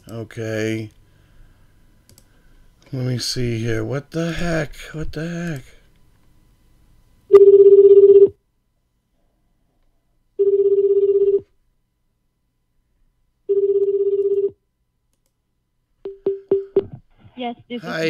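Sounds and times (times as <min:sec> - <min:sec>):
telephone ringback tone: 0:07.3 - 0:08.3, 0:10.4 - 0:11.4, 0:13.5 - 0:14.6.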